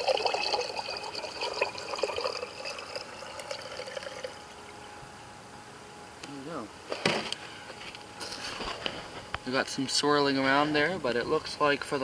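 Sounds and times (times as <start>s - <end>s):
liquid pouring into glass jar: 0.0s - 4.6s.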